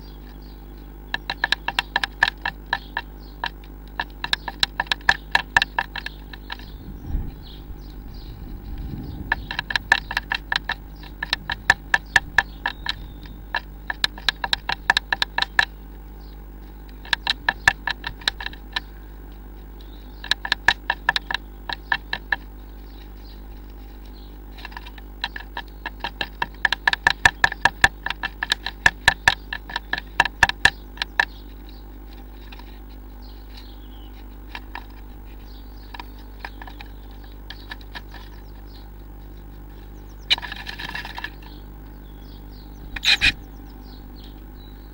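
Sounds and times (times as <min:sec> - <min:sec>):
low steady hum: 0:00.0 - 0:44.9
bird tapping on wood: 0:01.1 - 0:16.0, 0:16.7 - 0:19.0, 0:20.2 - 0:23.4, 0:24.5 - 0:32.8, 0:33.4 - 0:38.7, 0:40.3 - 0:41.6.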